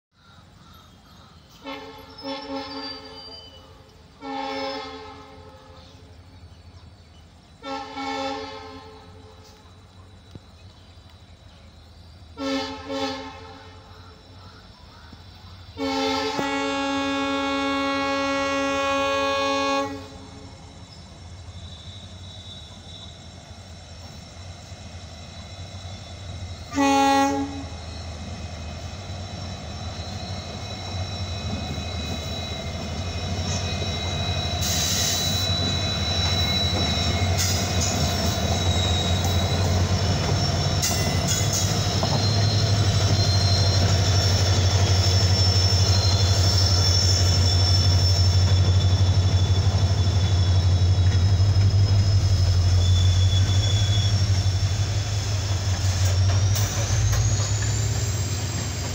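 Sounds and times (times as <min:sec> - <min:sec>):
diesel locomotive engines droning: 0:00.1 - 0:58.9
thin high squeal: 0:01.5 - 0:04.0, 0:29.1 - 0:58.9
locomotive twin-tone air horn: 0:01.6 - 0:06.1, 0:07.6 - 0:09.6, 0:12.4 - 0:13.9, 0:15.8 - 0:20.7, 0:26.6 - 0:27.9
wheels rattling on rails: 0:27.4 - 0:58.9.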